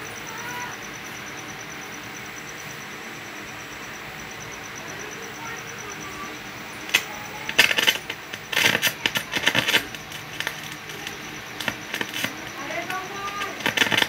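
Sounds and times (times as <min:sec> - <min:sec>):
sharp clicks: 0:06.8 - 0:14.0.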